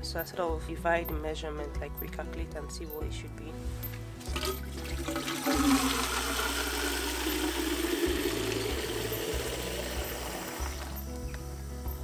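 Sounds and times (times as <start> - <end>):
water running into watering can: 4.2 - 11.0.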